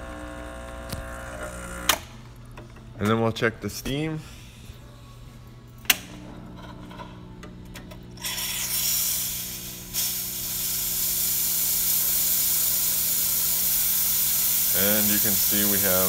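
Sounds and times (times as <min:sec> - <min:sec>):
low machine hum: 0:00.0 - 0:16.0
steam hissing: 0:08.2 - 0:16.0.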